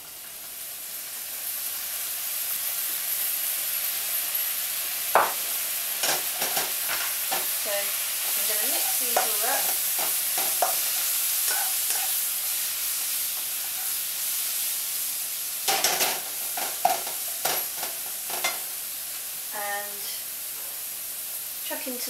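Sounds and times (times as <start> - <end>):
leeks sizzling in oil: 0.0 - 22.0
utensil knocking and scraping pan: 8.8 - 12.2.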